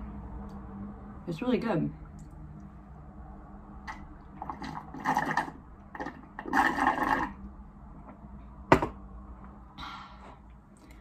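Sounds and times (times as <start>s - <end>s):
slurping through a straw: 3.9s - 7.5s.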